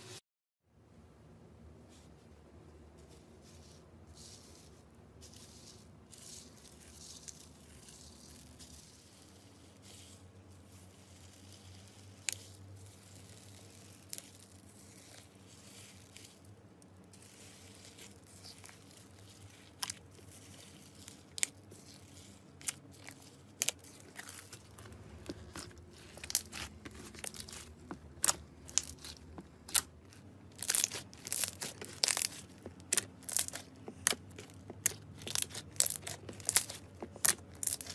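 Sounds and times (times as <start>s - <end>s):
foam beads rustling in glass bowl: 3.5s - 29.9s, 30.5s - 37.9s
slime crunchy crackling and popping: 10.8s - 37.9s.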